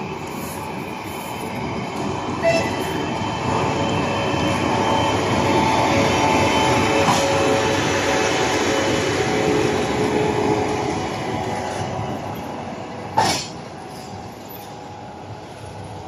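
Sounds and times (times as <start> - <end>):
train wheels rumbling on rails: 0.0 - 16.0
train horn toot: 2.4 - 3.0.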